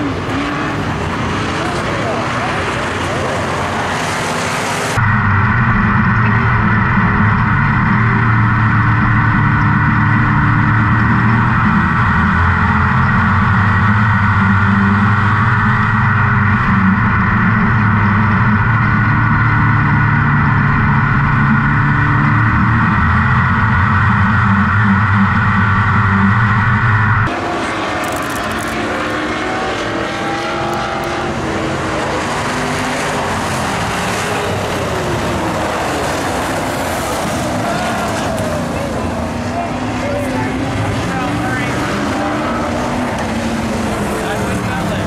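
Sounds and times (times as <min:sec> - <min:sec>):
cars racing on track: 0:00.0 - 0:45.0
race car engine running hard: 0:00.0 - 0:45.0.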